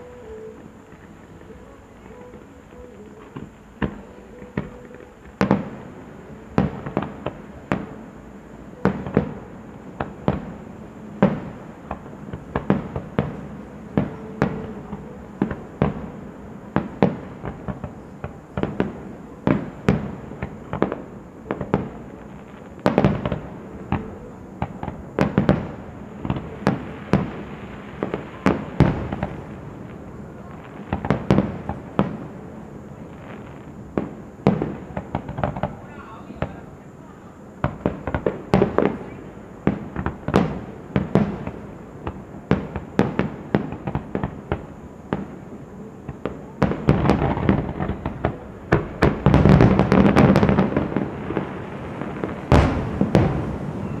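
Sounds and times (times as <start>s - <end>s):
fireworks bursting: 0.0s - 54.0s.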